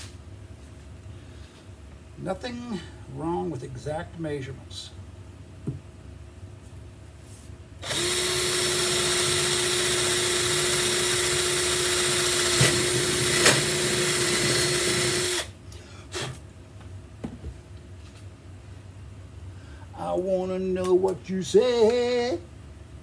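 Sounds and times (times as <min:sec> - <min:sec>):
cordless drill whining: 0:07.8 - 0:15.5.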